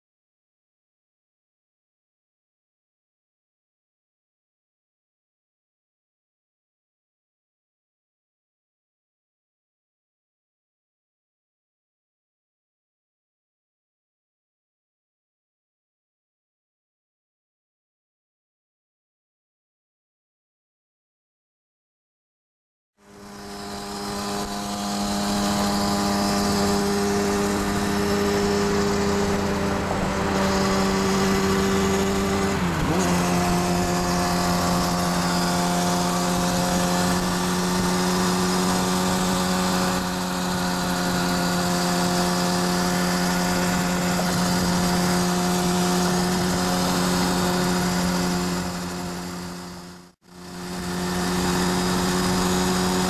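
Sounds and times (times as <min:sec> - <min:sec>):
motorcycle engine cruising: 0:23.0 - 0:53.0
wind and road noise: 0:23.0 - 0:53.0.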